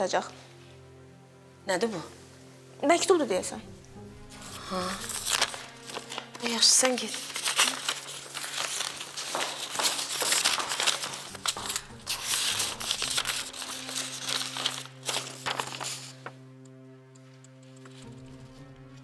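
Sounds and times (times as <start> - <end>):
paper rustling and crinkling: 4.3 - 16.4.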